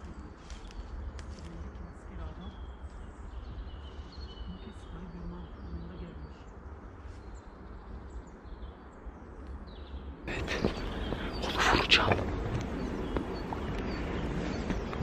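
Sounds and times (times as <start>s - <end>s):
faint bird chirps: 0.0s - 15.0s
low rumble: 10.3s - 15.0s.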